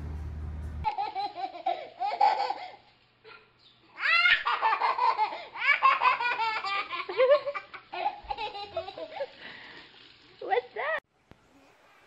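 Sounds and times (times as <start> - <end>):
toddler giggling: 0.9 - 9.2.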